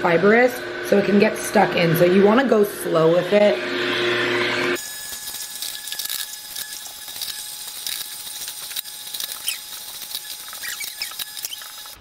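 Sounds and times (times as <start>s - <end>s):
faint motor whine: 0.0s - 12.0s
celery crackling in juicer: 4.2s - 12.0s.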